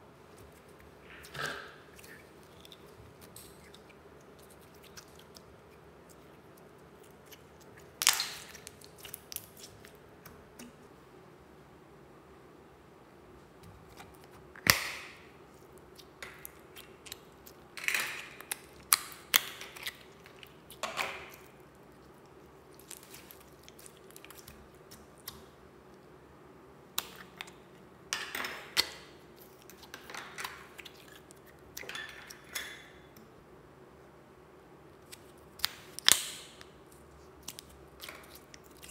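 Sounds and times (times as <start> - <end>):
slime crackling and squelching: 0.4 - 10.8, 13.8 - 25.5, 35.0 - 38.9.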